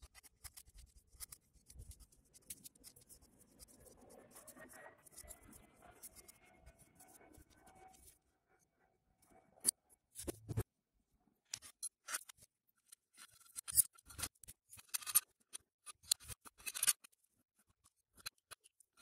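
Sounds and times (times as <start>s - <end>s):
small parts clicking and clinking: 0.0s - 6.4s, 11.5s - 19.0s.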